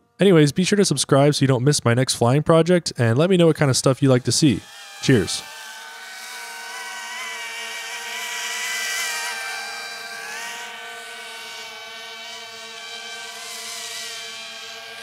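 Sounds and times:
drone propellers whining: 0:04.0 - 0:15.0.

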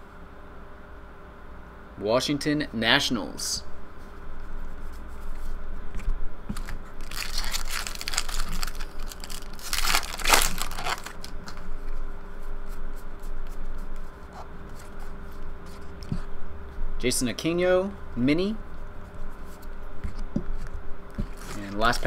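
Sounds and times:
foil wrapper tearing and crumpling: 0:06.5 - 0:11.6, 0:21.4 - 0:22.0.

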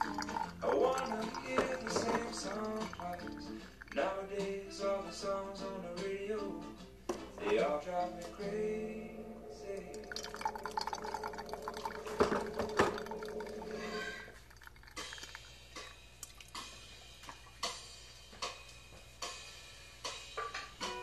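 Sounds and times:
coffee trickling into glass: 0:00.0 - 0:04.2, 0:09.7 - 0:16.6
background music: 0:00.0 - 0:14.3, 0:14.9 - 0:21.0.

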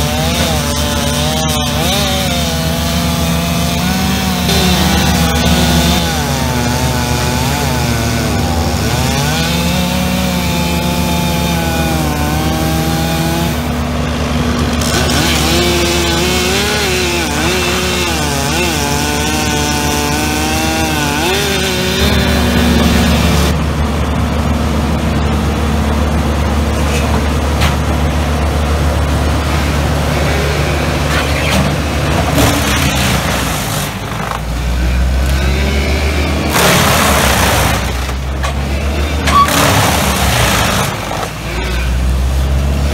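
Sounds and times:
chainsaw revving: 0:00.0 - 0:23.6, 0:29.0 - 0:42.9
wood chipper engine running: 0:00.0 - 0:42.9.

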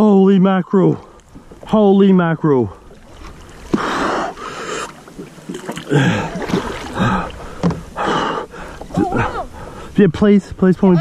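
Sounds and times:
person grunting: 0:05.9 - 0:07.3, 0:08.9 - 0:09.5
person breathing hard and gasping: 0:05.9 - 0:09.9.

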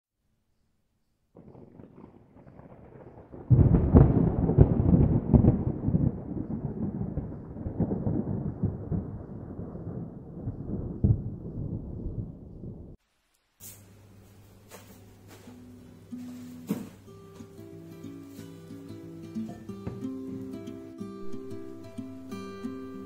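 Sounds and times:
rolling thunder crack: 0:01.4 - 0:13.0.

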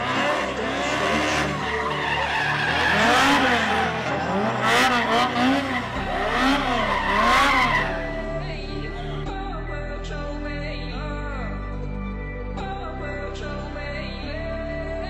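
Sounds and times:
tyres squealing: 0:00.0 - 0:08.5
car engine revving: 0:00.0 - 0:09.3.

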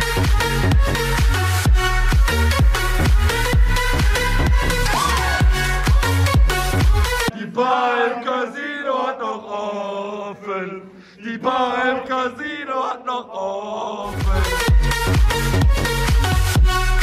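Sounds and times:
club dance music with heavy beat: 0:00.0 - 0:07.3, 0:14.1 - 0:17.0
young men singing together: 0:07.3 - 0:14.6.

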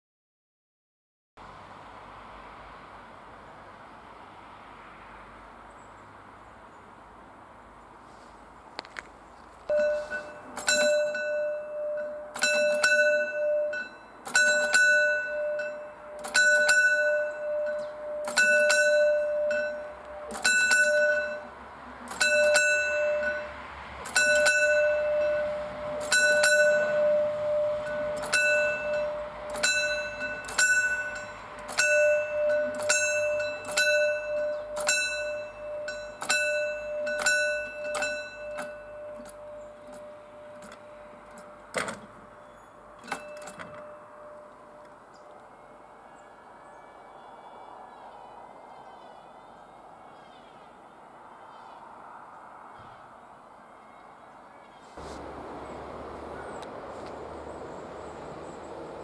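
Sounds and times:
level crossing bell clanging: 0:09.7 - 0:45.8.

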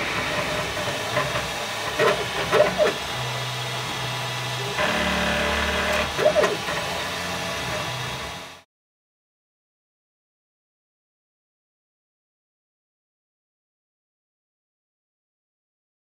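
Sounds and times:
cooling fan humming: 0:00.0 - 0:08.6
stepper motors whirring: 0:00.0 - 0:08.6.

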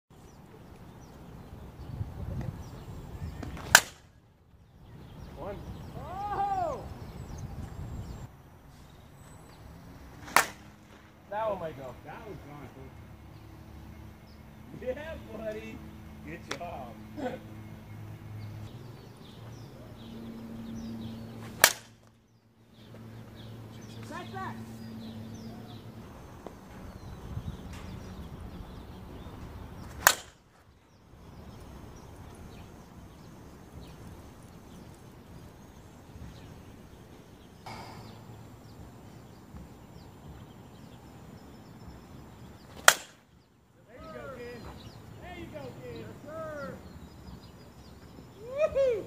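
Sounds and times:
bat striking softball: 0:03.4 - 0:04.1, 0:10.2 - 0:11.1, 0:21.4 - 0:22.1, 0:29.8 - 0:30.4, 0:42.7 - 0:43.3.

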